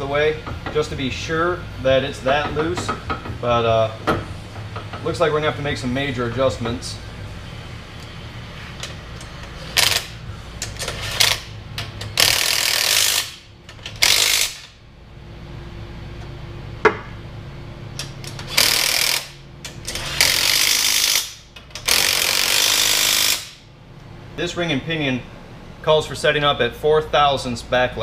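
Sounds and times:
impact wrench bursts: 9.6s - 14.8s, 18.2s - 23.7s.

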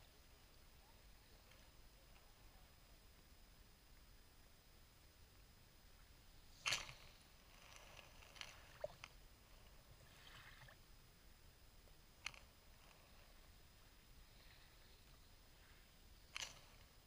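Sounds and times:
water ticks: 8.3s - 9.2s.

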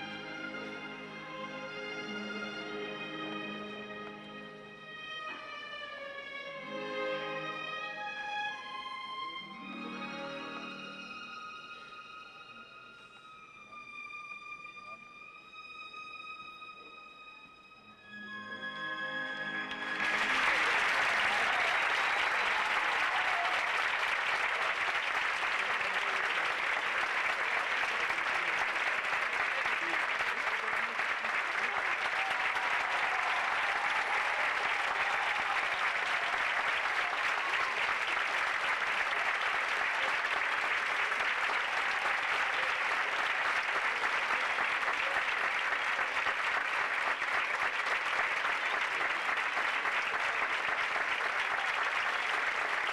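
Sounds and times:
audience applauding: 0.0s - 4.3s, 19.0s - 52.9s
orchestral music: 0.0s - 29.0s.

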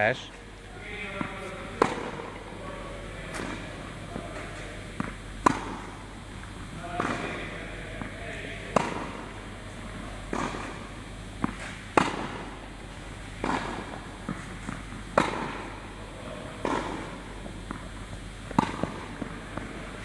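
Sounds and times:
racket hitting tennis ball: 1.0s - 2.5s, 3.2s - 6.1s, 6.8s - 9.4s, 10.1s - 15.8s, 16.5s - 20.0s
tennis ball bouncing: 1.0s - 2.5s, 3.2s - 6.1s, 6.8s - 15.8s, 16.5s - 20.0s
shoes scuffing court: 1.0s - 5.9s.

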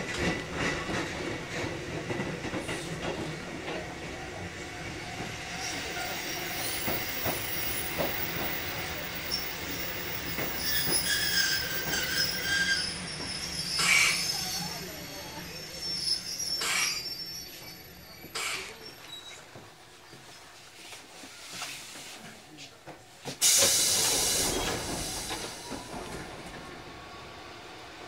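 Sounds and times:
high-pitched wheel squeal: 10.6s - 19.4s.

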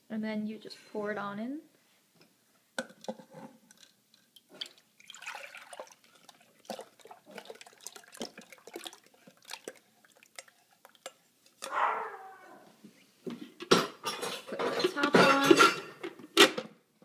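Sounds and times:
thick liquid pouring into bowl: 3.7s - 11.2s.

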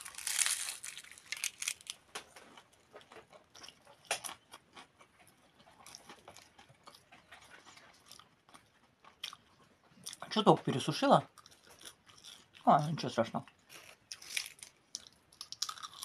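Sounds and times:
crunching pastry being chewed: 0.0s - 16.0s.

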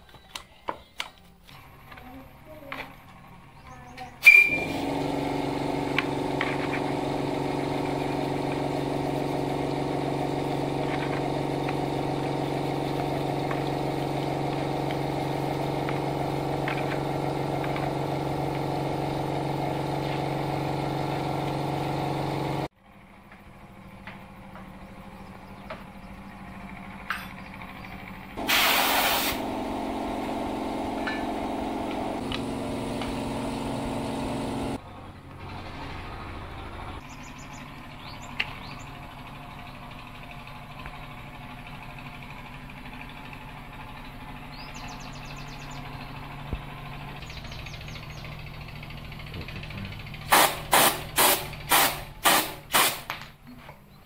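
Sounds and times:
brief hiss: 28.4s - 29.4s.

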